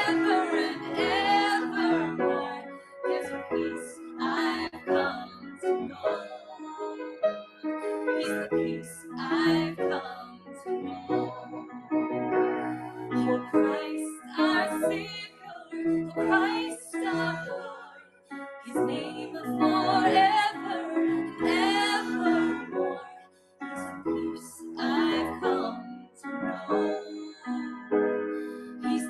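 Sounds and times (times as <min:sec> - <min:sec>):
woman singing: 0:00.0 - 0:07.2, 0:08.2 - 0:11.6, 0:13.1 - 0:18.1, 0:18.7 - 0:23.2, 0:23.8 - 0:27.9, 0:28.8 - 0:29.0
keyboard chords: 0:00.0 - 0:14.7.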